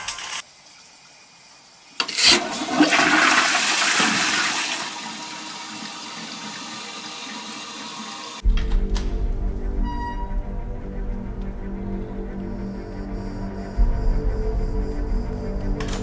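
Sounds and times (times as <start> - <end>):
toilet flush water rushing: 0.0 - 0.4, 2.0 - 8.4.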